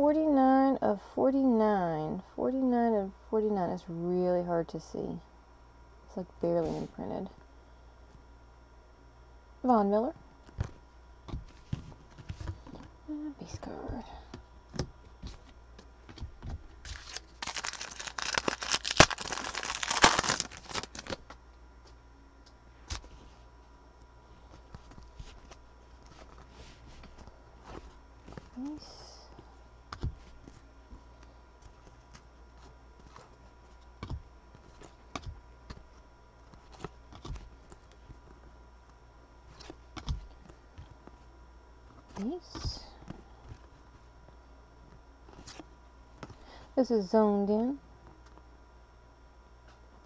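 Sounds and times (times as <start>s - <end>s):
trading cards flipped by hand: 14.7s - 22.0s, 22.8s - 23.3s, 24.5s - 28.6s
foil wrapper crinkling: 16.8s - 21.4s
foil wrapper snaps: 16.8s - 21.4s.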